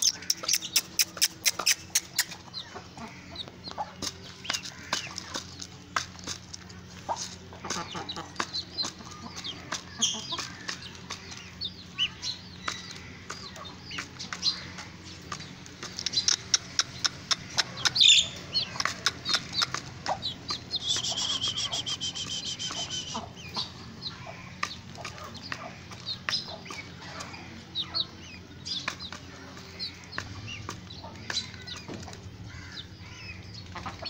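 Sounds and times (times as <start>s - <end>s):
chickens clucking: 0.0s - 34.0s
long high bird call: 20.8s - 23.3s.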